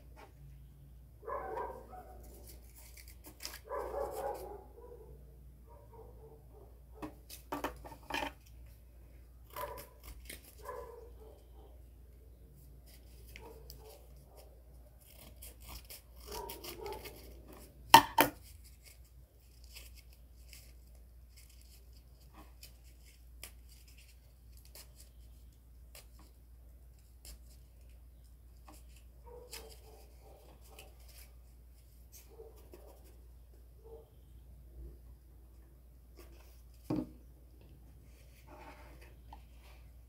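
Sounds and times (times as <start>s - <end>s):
scissors cutting cardboard: 9.4s - 11.0s, 12.9s - 25.2s.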